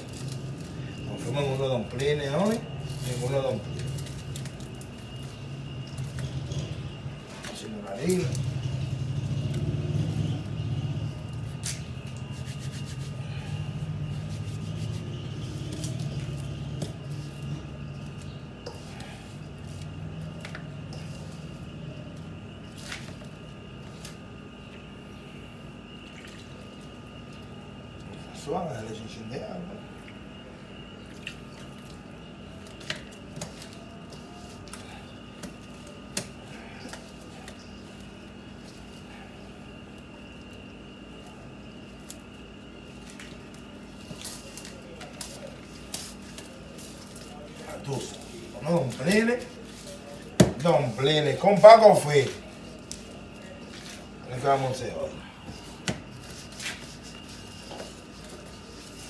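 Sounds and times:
hands kneading dough in a bowl: 0.0s - 25.0s, 25.9s - 59.0s
steady low hum: 0.0s - 59.0s.

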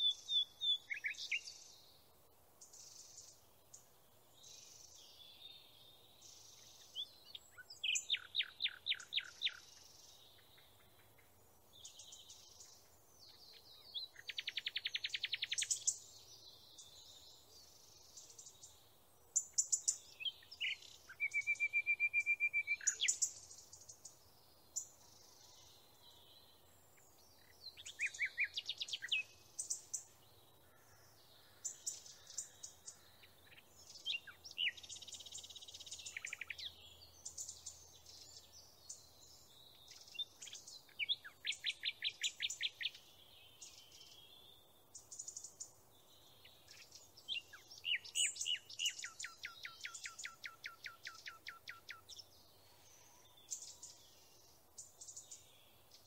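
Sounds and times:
songbird chirping and trilling: 0.0s - 56.0s.

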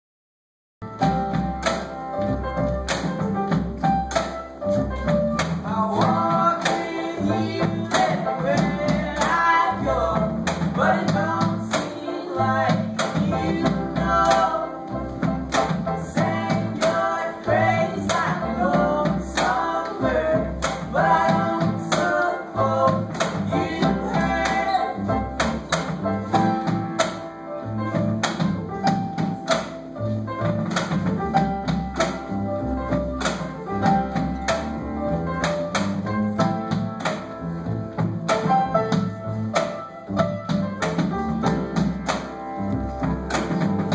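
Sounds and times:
acoustic guitar: 0.8s - 43.9s
upright double bass: 0.8s - 43.9s
person singing: 16.0s - 25.2s.

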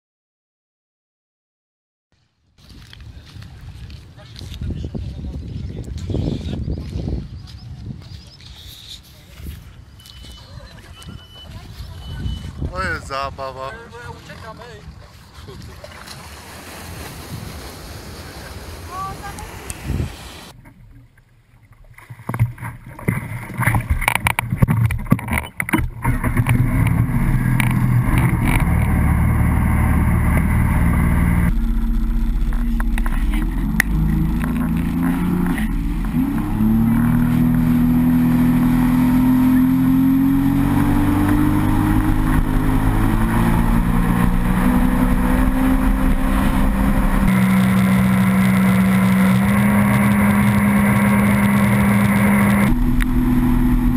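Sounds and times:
rushing wind and water: 9.4s - 53.9s
watercraft engine running hard: 10.1s - 20.6s, 25.8s - 53.9s
gusty wind buffeting: 11.5s - 15.8s, 16.6s - 20.6s, 26.2s - 53.9s.

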